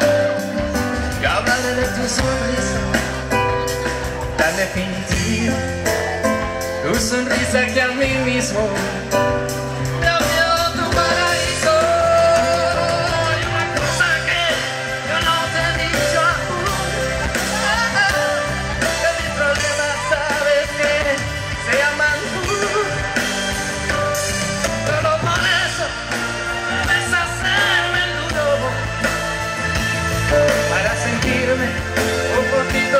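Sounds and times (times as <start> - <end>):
live band playing pop-rock ballad: 0.0 - 32.9
man singing: 0.0 - 32.9.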